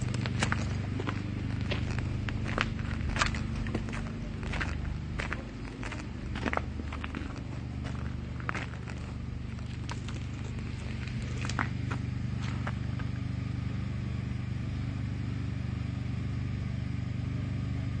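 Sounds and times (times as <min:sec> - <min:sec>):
footsteps on broken glass: 0:00.0 - 0:13.1
large engine humming: 0:00.0 - 0:18.0.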